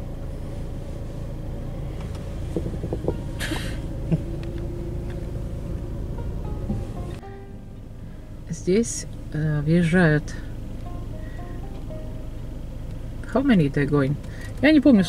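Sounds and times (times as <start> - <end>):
car engine rumble from inside: 0.0 - 15.0
short hiss: 3.4 - 3.9.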